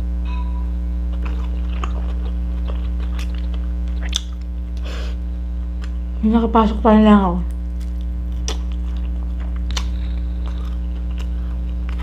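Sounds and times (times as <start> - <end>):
steady electrical hum: 0.0 - 12.0
chewing mouth smacks: 1.1 - 4.5, 7.8 - 12.0.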